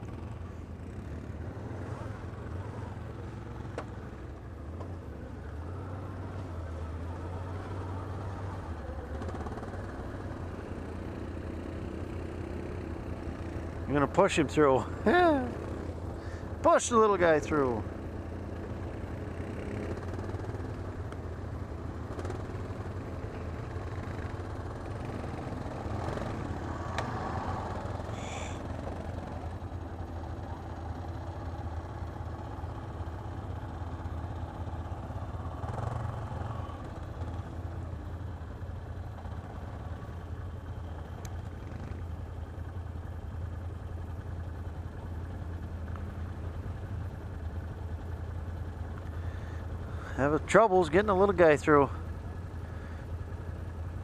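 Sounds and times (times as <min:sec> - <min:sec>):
atv engine idling: 0:00.0 - 0:54.0
quad engines revving: 0:21.7 - 0:29.4.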